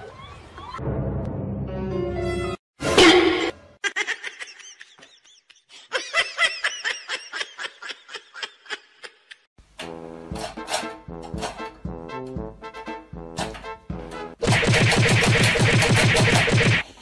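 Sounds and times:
person giggling: 3.8s - 9.5s.

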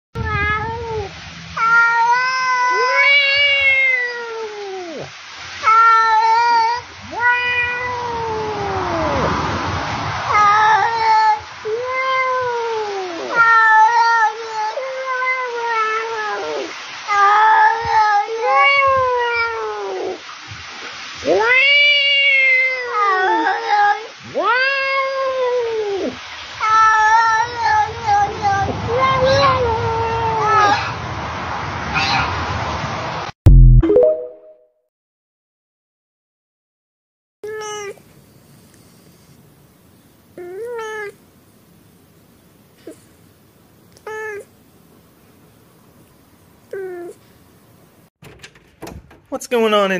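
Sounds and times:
cat meowing: 0.2s - 9.3s, 10.3s - 20.2s, 21.2s - 31.0s, 37.4s - 38.0s, 40.4s - 41.2s, 44.0s - 44.5s, 46.7s - 47.2s.

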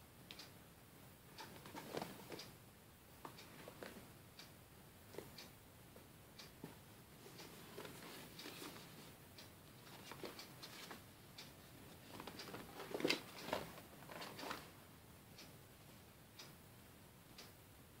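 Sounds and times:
mask handling clicks and rustles: 1.4s - 2.5s, 7.4s - 9.1s, 9.8s - 11.1s, 11.9s - 14.8s.

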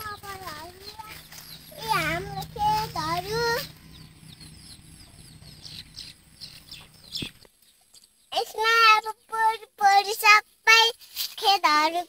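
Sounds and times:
low hum: 0.0s - 7.4s
faint bird chirps: 0.0s - 9.6s.

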